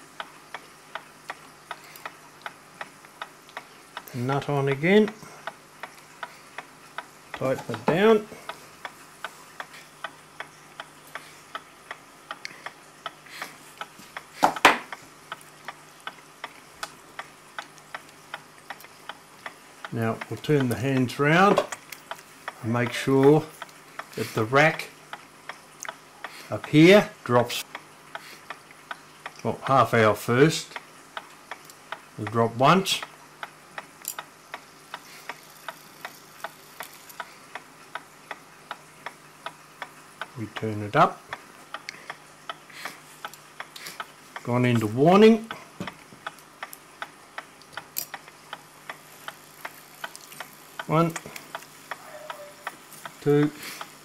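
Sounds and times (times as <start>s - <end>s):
clock ticking: 0.1s - 54.0s.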